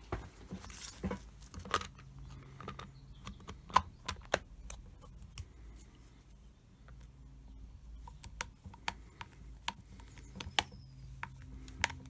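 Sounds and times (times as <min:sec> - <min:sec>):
plastic parts clicking: 0:01.0 - 0:05.9, 0:08.0 - 0:12.0.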